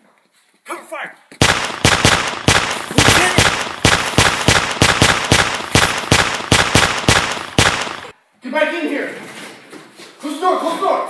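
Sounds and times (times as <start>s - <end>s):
rapid gunfire: 1.4s - 8.2s.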